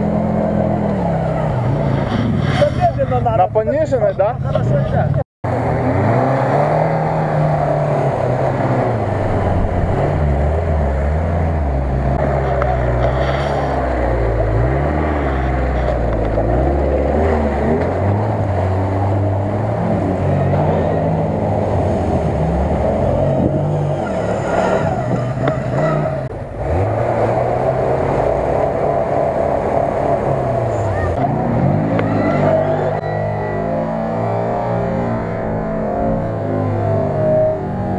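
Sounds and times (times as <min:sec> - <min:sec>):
water splashing and churning: 0:05.5 - 0:32.7
car engine revving under load: 0:05.5 - 0:37.9.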